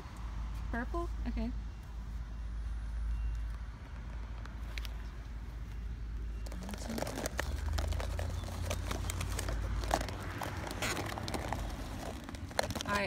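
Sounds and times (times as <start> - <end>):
paint tubes rattling: 6.4 - 13.0
plastic packaging crinkling: 6.4 - 13.0.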